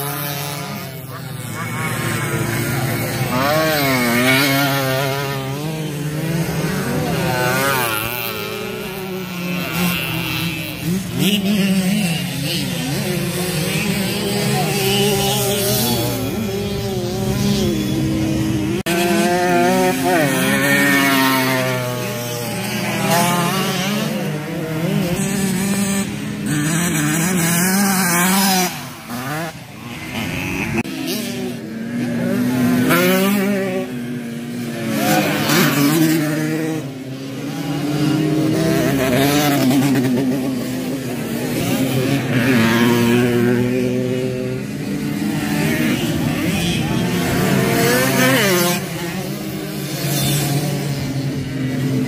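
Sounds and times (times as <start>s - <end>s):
racing motorcycles revving: 0.0s - 52.0s.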